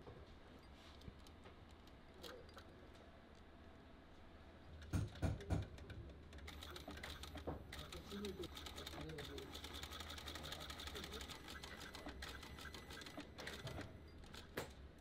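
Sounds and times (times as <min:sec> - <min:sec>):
sewing needle clicking rapidly: 0:04.8 - 0:14.5
sewing machine humming: 0:06.3 - 0:14.0.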